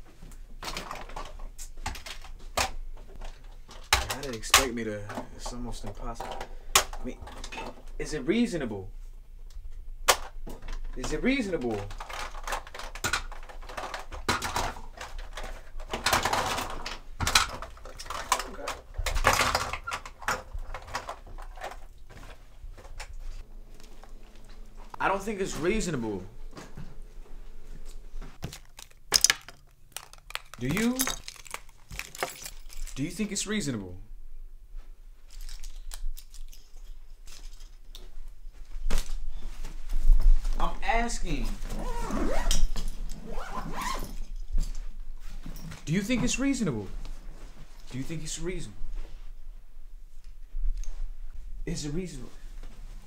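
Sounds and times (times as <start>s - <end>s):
low steady hum: 0.0s - 53.0s
soft rustles and clicks: 9.0s - 33.3s, 34.7s - 53.0s
plastic bottles and caps clicking: 28.4s - 33.0s.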